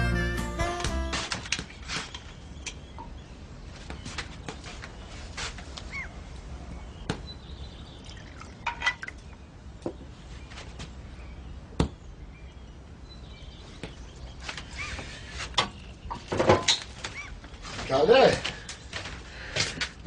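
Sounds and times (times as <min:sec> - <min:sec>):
kettle and lid clinking: 0:08.6 - 0:09.1.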